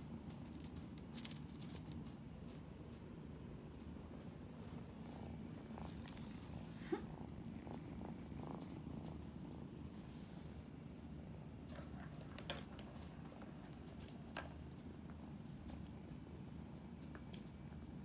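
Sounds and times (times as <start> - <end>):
kitten purring: 3.8 - 18.0.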